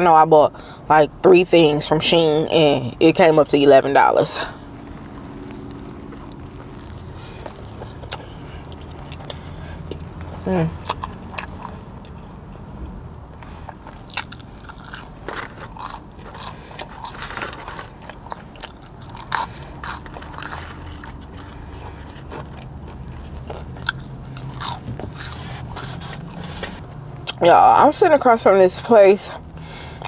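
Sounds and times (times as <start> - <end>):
low steady hum: 0.0 - 30.0
chewing with wet mouth clicks: 4.9 - 12.2, 13.7 - 27.4.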